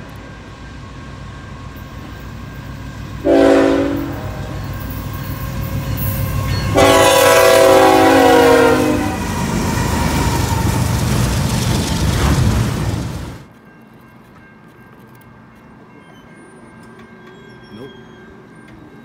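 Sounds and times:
locomotive engine rumble: 0.0 - 13.5
train wheel noise: 0.0 - 19.0
train horn blasts: 3.2 - 4.8, 6.0 - 9.3.

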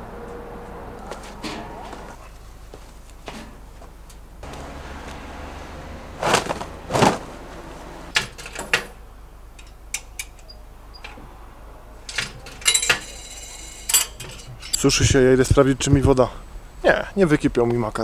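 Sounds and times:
laundry loaded into dryer: 4.4 - 8.8.

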